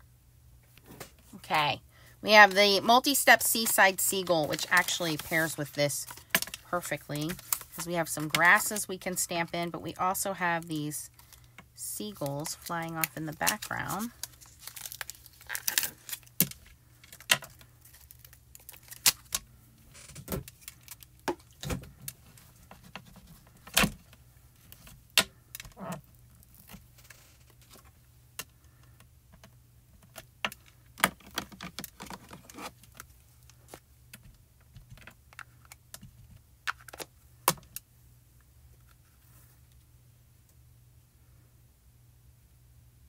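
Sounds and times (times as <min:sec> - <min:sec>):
plastic sleeve crinkling: 0:02.3 - 0:09.2, 0:10.2 - 0:28.0, 0:30.5 - 0:33.8.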